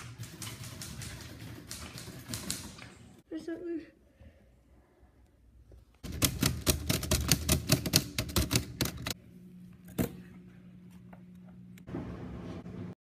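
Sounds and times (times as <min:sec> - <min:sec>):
manual typewriter typing: 0:06.0 - 0:09.2
low steady hum: 0:08.6 - 0:13.0.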